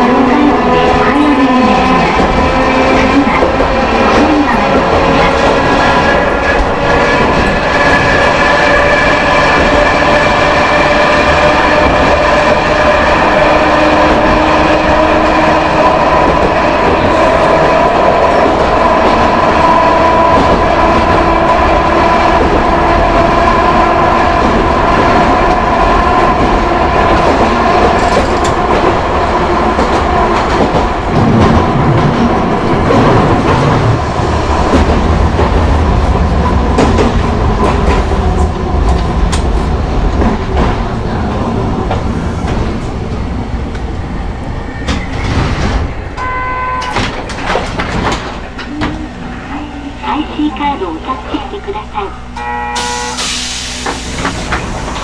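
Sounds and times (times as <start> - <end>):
rail-joint clatter: 27.1 - 29.0, 46.8 - 49.0.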